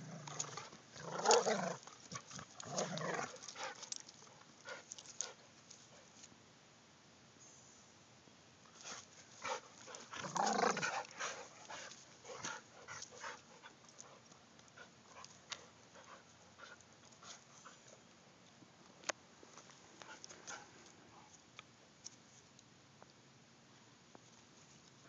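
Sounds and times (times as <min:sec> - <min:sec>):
dogs panting and huffing: 0:00.2 - 0:06.2, 0:08.7 - 0:18.0, 0:19.9 - 0:21.4.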